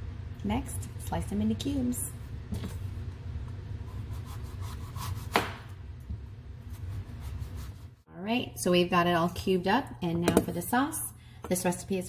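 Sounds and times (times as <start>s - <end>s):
steady low hum: 0.0s - 9.0s
knife slicing squash: 3.9s - 5.6s.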